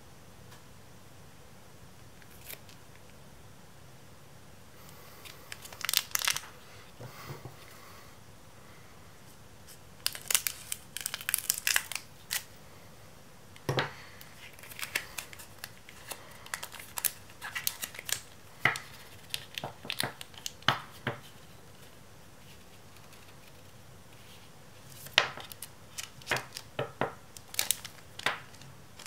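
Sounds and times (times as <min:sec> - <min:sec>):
foil crinkling: 0:05.2 - 0:06.6, 0:10.0 - 0:12.5, 0:14.1 - 0:29.0.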